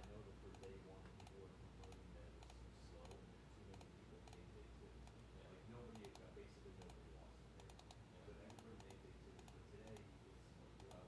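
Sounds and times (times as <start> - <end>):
computer mouse clicks: 0.0 - 5.2, 5.9 - 7.0, 7.6 - 10.1, 10.8 - 11.0
keyboard clicks: 5.9 - 7.0, 7.6 - 10.1.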